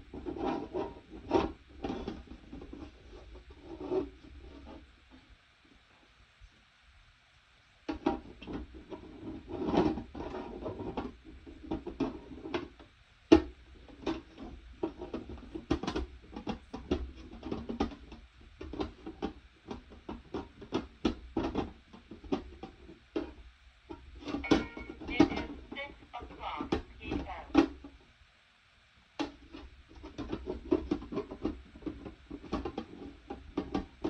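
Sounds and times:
sharp knock: 24.4 - 25.5.

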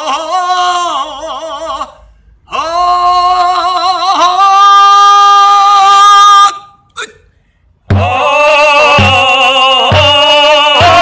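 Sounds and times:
person singing long notes: 7.9 - 11.0.

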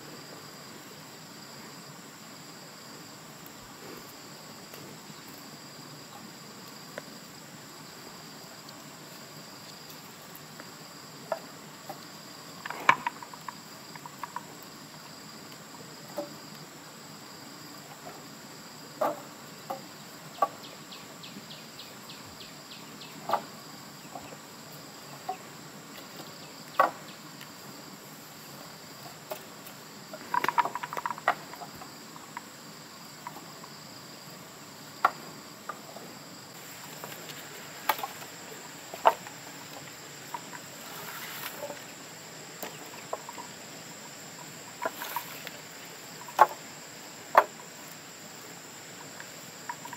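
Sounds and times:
insects buzzing: 0.0 - 49.9
firewood clattering: 11.3 - 14.5, 30.1 - 32.4, 36.6 - 41.9, 44.4 - 46.6
wooden sticks knocking: 30.3 - 31.6.

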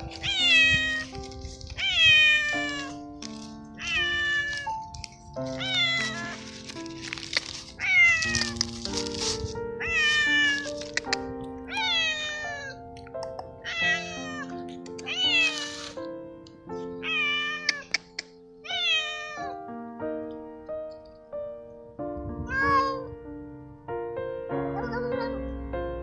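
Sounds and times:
background music with held notes: 0.0 - 26.0
cat meowing loudly: 0.1 - 3.1, 3.8 - 4.8, 5.5 - 6.4, 7.8 - 8.6, 9.8 - 11.1, 11.7 - 12.8, 13.6 - 16.0, 17.0 - 19.6, 22.4 - 23.1.

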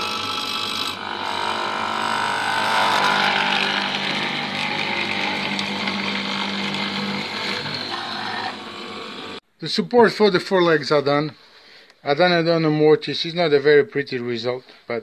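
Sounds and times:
mortiser cutting into wood: 0.0 - 9.4.

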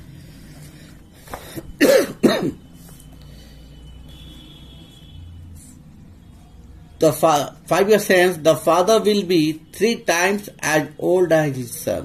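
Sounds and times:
man coughing: 1.8 - 2.7.

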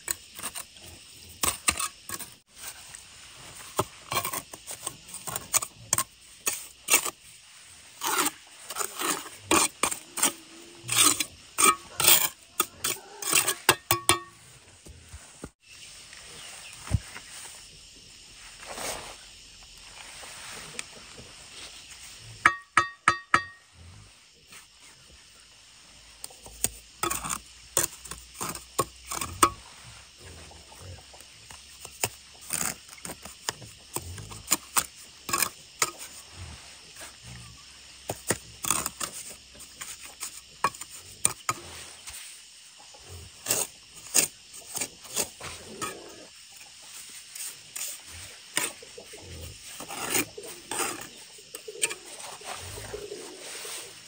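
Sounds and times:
trowel scraping mortar: 0.0 - 14.4, 26.5 - 29.8, 31.5 - 36.2, 38.1 - 42.3, 43.4 - 46.0, 47.0 - 54.0
trowel ringing taps: 22.5 - 23.6.

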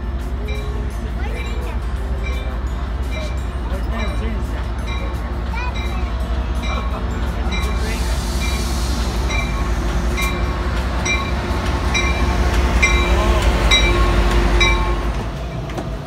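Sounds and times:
diesel locomotive engine rumble: 0.0 - 16.0
bell ringing: 9.3 - 15.1.

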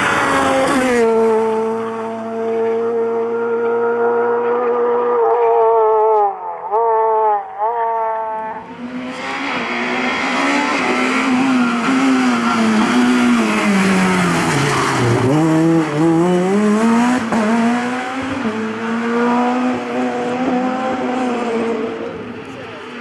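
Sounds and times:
rally car engines revving: 0.0 - 23.0.

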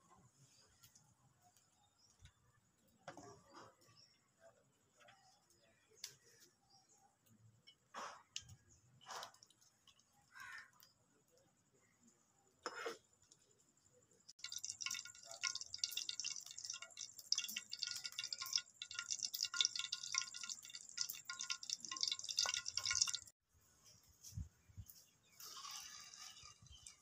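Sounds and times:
oil crackling and spitting: 8.0 - 10.6, 14.3 - 23.3, 25.4 - 27.0
food sizzling in hot oil: 14.4 - 23.3.

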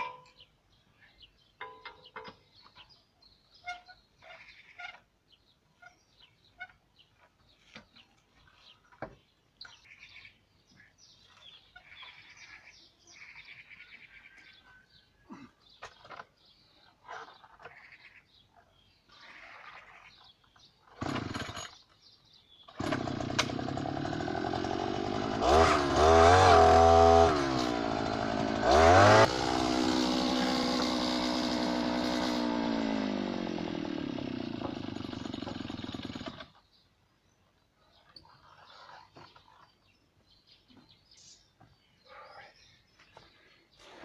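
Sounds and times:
earth auger engine running: 21.0 - 21.8, 22.7 - 36.5.

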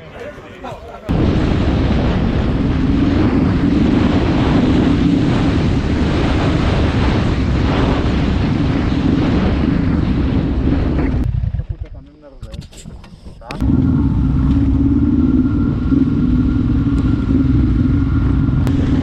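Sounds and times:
wind rushing over microphone: 1.1 - 11.8, 12.4 - 19.0
motorcycle engine droning: 10.2 - 12.2, 13.4 - 19.0.

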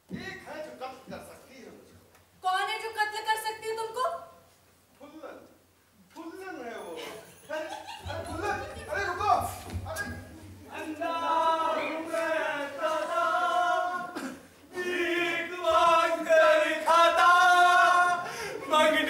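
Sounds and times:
voices chanting unaccompanied: 10.1 - 19.0.

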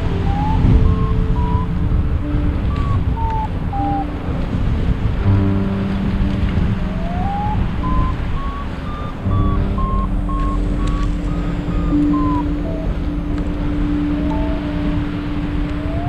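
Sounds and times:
wind noise on microphone: 0.0 - 16.0
variometer short beeps: 7.9 - 12.9.

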